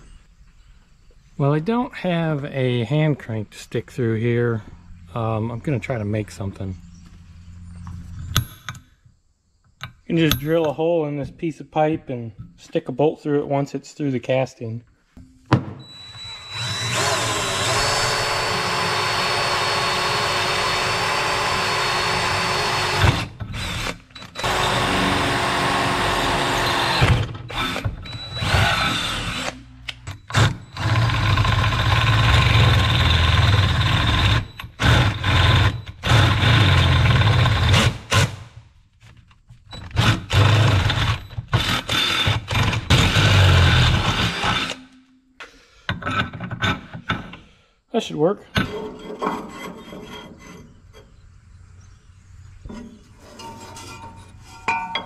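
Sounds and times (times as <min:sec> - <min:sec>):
electric drill boring metal pipe: 0:16.0 - 0:29.6, 0:30.2 - 0:38.2, 0:39.7 - 0:44.8.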